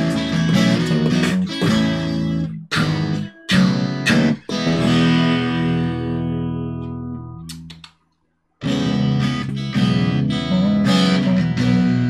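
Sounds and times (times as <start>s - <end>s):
acoustic guitar strummed chords: 0.0s - 7.4s
bass guitar: 0.0s - 7.9s, 8.6s - 12.0s.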